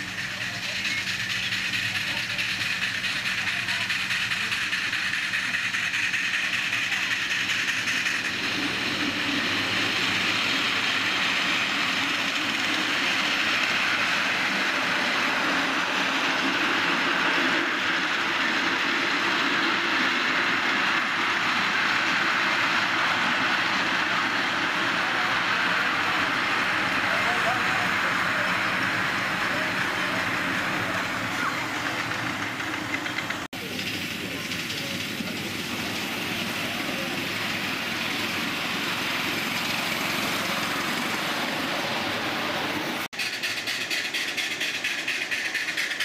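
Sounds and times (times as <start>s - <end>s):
miniature steam train rumbling past: 0.0s - 46.0s.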